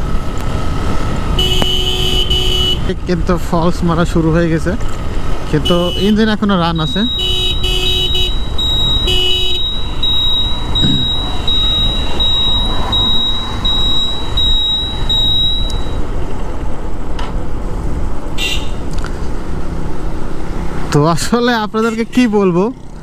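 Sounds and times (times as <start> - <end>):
wind and road noise: 0.0 - 23.0
turn-signal buzzer beeping: 8.1 - 16.0.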